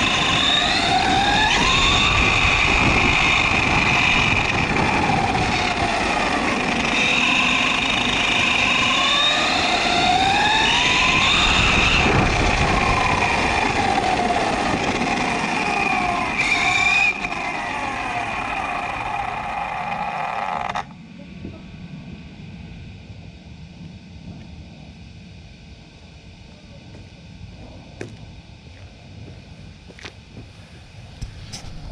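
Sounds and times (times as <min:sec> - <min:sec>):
rc car motor whining: 0:00.0 - 0:20.9
steady high whine: 0:00.0 - 0:31.9.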